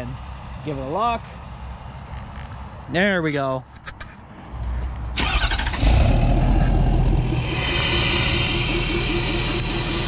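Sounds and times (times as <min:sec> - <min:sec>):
diesel engine idling: 0:05.1 - 0:10.0.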